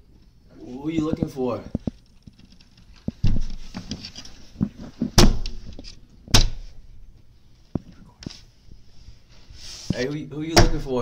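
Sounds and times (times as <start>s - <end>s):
loud bangs on door: 5.2s - 5.6s, 10.6s - 10.9s.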